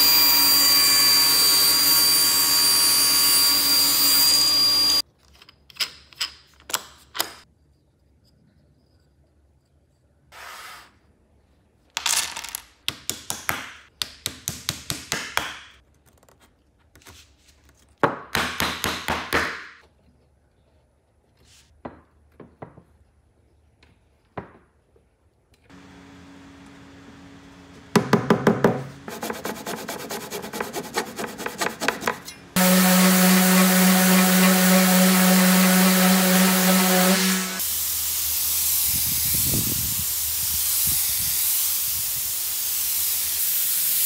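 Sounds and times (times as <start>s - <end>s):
fast back-and-forth strokes: 29.0s - 37.6s
rasping on wood: 29.1s - 36.4s.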